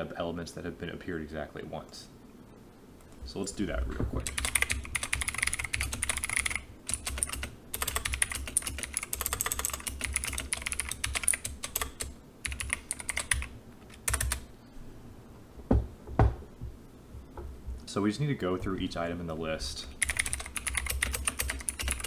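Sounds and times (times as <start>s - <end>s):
keyboard typing: 4.2s - 14.5s, 20.0s - 22.0s
dull thumps: 15.6s - 17.8s.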